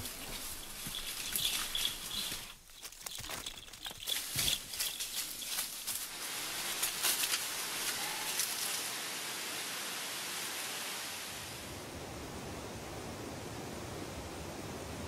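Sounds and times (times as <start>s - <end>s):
rustles and crackles: 0.0s - 9.0s
steady hiss: 4.6s - 15.0s.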